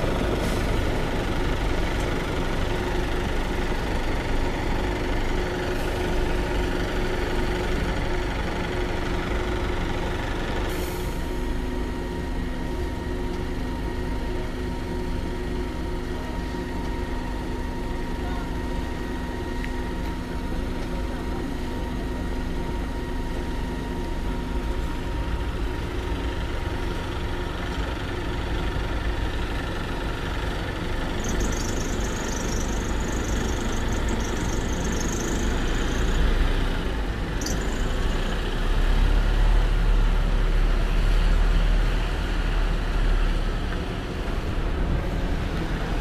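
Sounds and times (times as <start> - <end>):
bus engine: 0.0 - 46.0.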